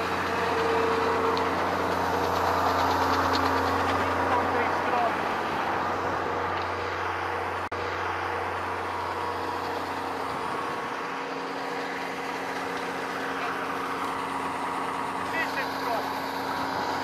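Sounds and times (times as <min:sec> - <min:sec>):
combine harvester engine hum: 0:00.0 - 0:17.0.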